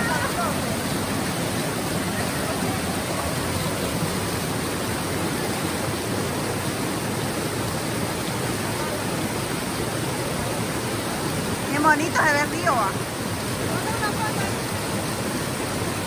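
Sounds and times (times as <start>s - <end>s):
river rushing over rocks: 0.0s - 16.0s.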